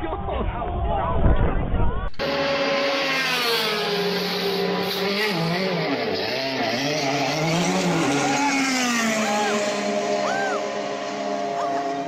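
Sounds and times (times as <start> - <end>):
race car engine revving: 2.2 - 12.0.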